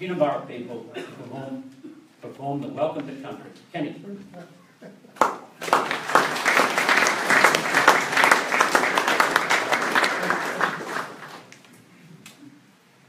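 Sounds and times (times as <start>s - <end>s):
audience applauding: 5.2s - 11.6s.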